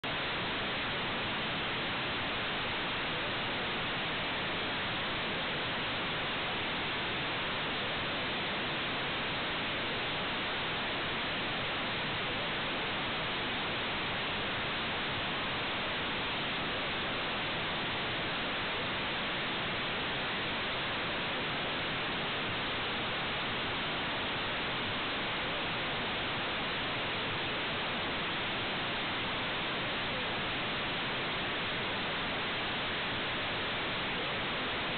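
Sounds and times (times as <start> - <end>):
steady electronic hiss: 0.0 - 34.9.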